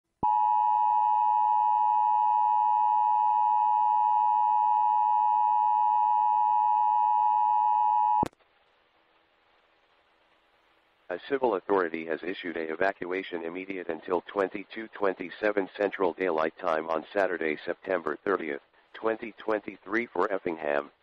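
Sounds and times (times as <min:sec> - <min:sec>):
faint radio hiss: 0:08.2 - 0:21.0.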